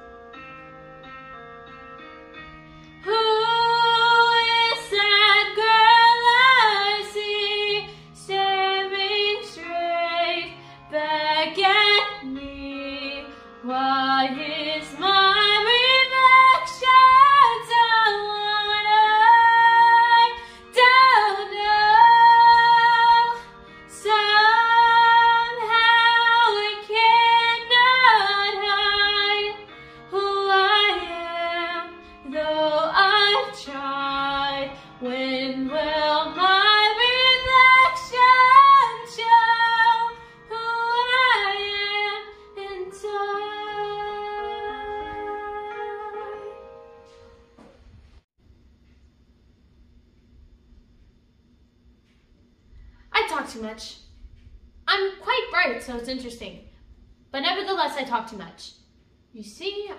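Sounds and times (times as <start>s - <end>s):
woman singing a slow ballad: 3.0s - 46.7s.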